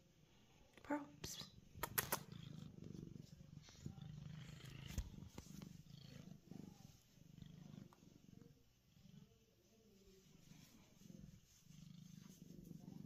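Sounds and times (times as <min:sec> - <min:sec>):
cat purring: 0:00.6 - 0:13.0.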